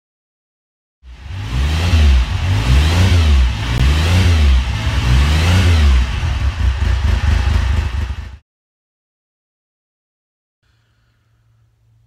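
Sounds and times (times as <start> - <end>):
motorcycle engine revving: 1.0 - 8.4.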